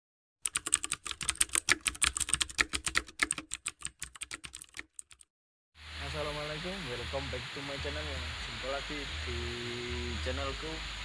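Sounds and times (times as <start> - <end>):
keyboard typing clicks: 0.4 - 5.3.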